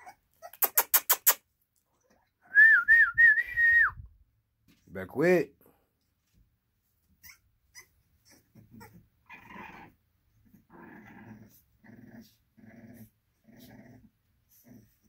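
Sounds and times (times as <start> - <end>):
puppies growling: 0.0 - 0.8, 7.2 - 15.0.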